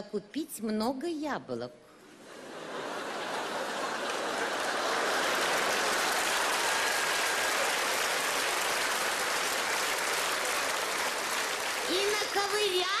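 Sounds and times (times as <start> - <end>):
audience applauding: 2.8 - 13.0.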